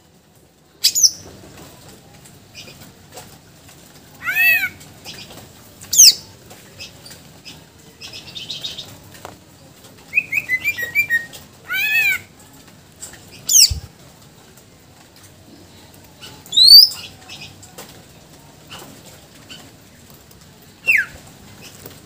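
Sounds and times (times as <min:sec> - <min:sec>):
bird singing whistled phrases: 0:10.1 - 0:11.9, 0:13.5 - 0:13.8, 0:16.5 - 0:17.0, 0:20.8 - 0:21.2.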